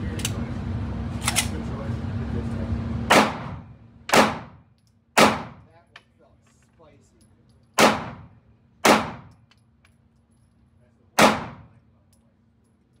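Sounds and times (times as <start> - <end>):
pistol shots with echo: 3.1 - 4.6, 5.2 - 5.6, 7.8 - 9.3, 11.2 - 11.7.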